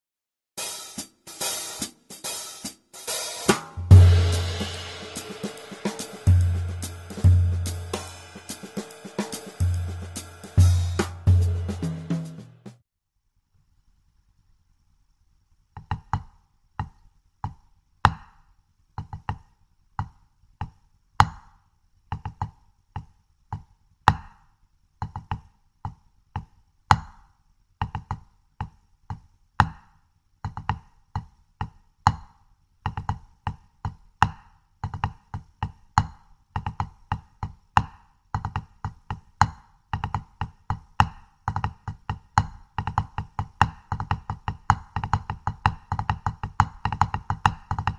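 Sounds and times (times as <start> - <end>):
drumsticks on practice pad: 0.7 - 12.8.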